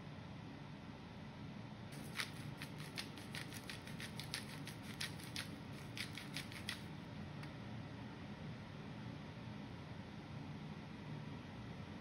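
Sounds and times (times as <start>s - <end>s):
salt crystals ticking on plate: 2.0s - 6.8s.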